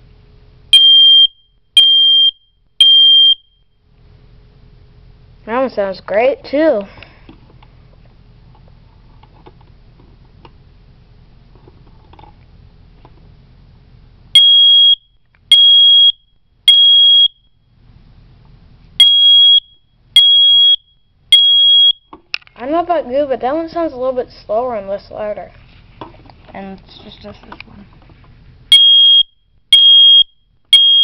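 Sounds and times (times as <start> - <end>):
faint room hum: 0.0 - 31.0
smoke alarm beeping: 0.7 - 3.7, 14.4 - 17.5, 19.0 - 22.1, 28.7 - 31.0.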